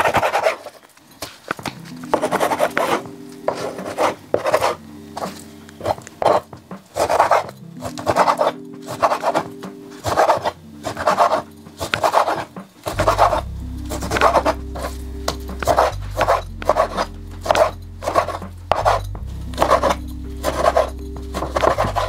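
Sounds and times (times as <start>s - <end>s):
background music with bass: 1.6s - 11.9s, 12.5s - 22.0s
knife scraping wooden board: 7.0s - 13.4s, 15.6s - 22.0s.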